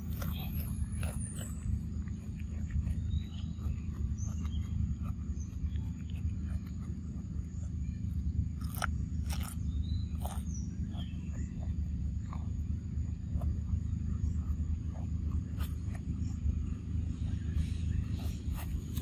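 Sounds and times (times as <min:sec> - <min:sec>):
monkey chewing cucumber: 0:00.0 - 0:19.0
steady low rumble: 0:00.0 - 0:19.0.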